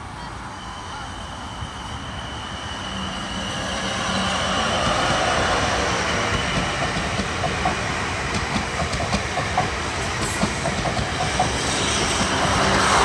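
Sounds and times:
train carriages rumbling past: 0.0 - 13.0
wheels clicking over rail joints: 6.5 - 13.0.

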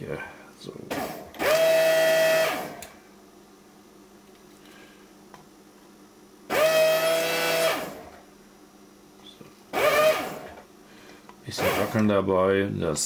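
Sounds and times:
vacuum pump motor whine: 0.6 - 3.0, 6.5 - 8.4, 9.2 - 10.7, 11.4 - 12.3.

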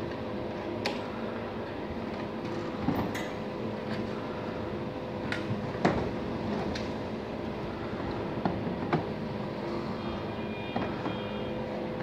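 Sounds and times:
steady mechanical hum: 0.0 - 12.0.

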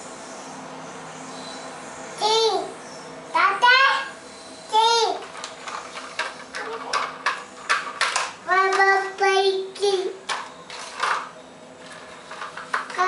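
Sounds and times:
child singing: 8.5 - 10.2.

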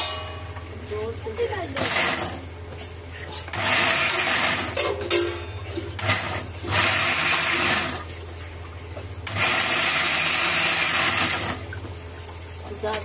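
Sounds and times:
mixer grinder whirring: 1.2 - 2.6, 3.2 - 5.0, 5.7 - 8.2, 9.2 - 11.8.

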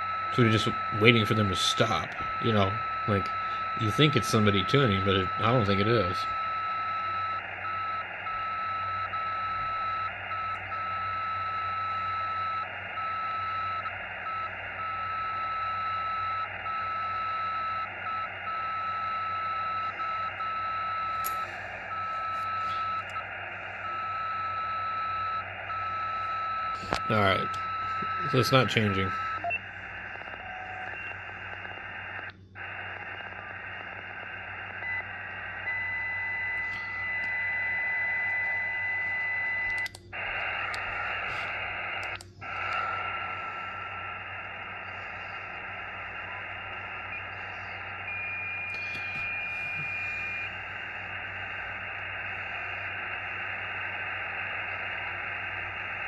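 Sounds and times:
radio whistling tones: 0.0 - 56.0
radio receiver hiss: 19.9 - 56.0.

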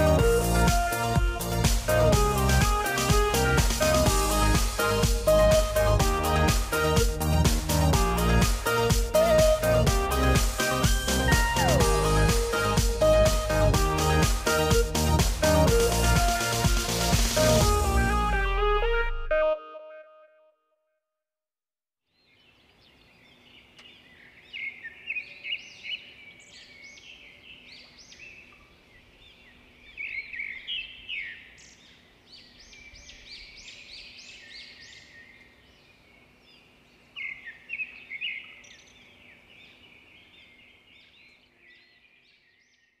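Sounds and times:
small birds chirping: 22.2 - 43.0.

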